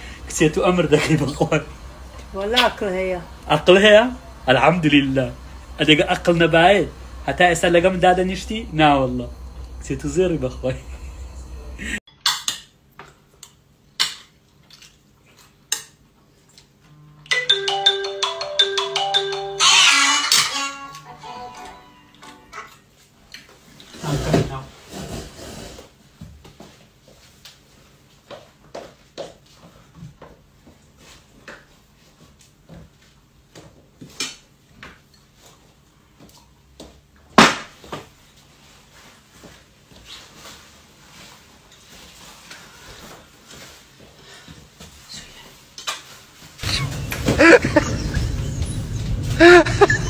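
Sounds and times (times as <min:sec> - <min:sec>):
melody of short notes: 0:17.1 - 0:22.6.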